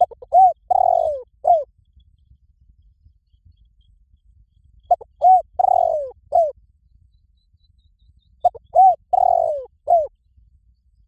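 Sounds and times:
dove cooing: 0:00.0 - 0:01.7, 0:04.9 - 0:06.6, 0:08.4 - 0:10.1.

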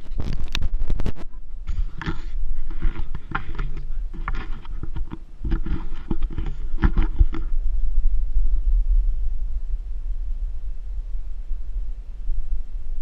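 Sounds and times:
wind rumbling on microphone: 0:00.0 - 0:13.0
rustling and knocks: 0:01.2 - 0:07.6.

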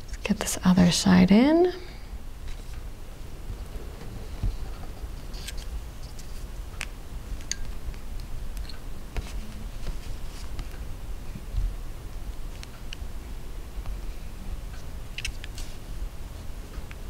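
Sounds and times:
low rumble: 0:02.9 - 0:06.0.

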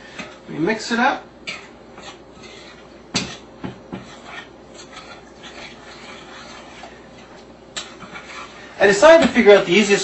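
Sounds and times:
utensil stirring thick mix: 0:01.0 - 0:10.0.

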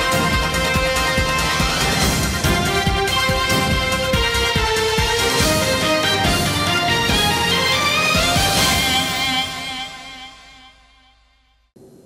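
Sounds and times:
news theme music: 0:00.0 - 0:10.6
drum hits: 0:01.7 - 0:05.7.

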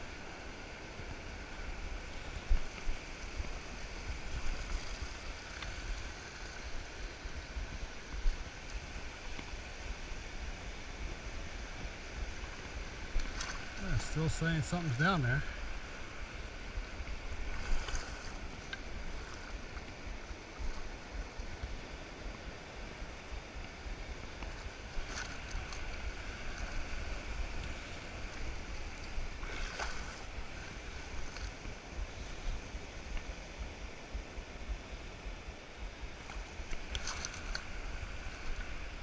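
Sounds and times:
surf washing across sand: 0:00.0 - 0:39.0
water splashes: 0:00.0 - 0:39.0.

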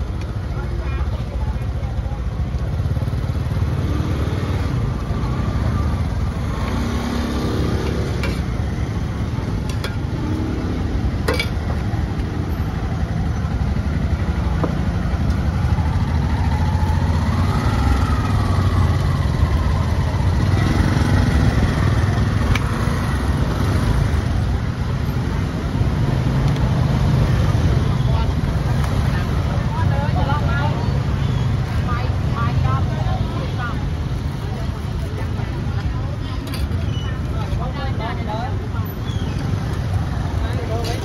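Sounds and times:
voices in background: 0:00.0 - 0:10.8, 0:27.5 - 0:41.0
motorbike engines running: 0:00.0 - 0:41.0.

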